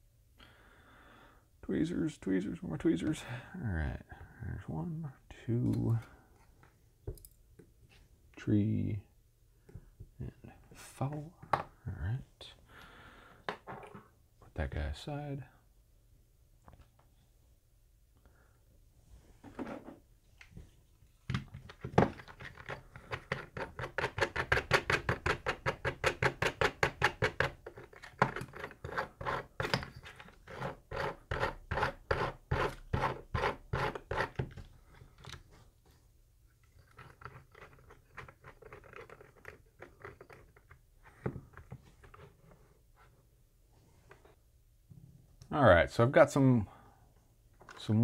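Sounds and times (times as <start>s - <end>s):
rustling and scraping: 19.0s - 23.0s, 34.0s - 45.2s.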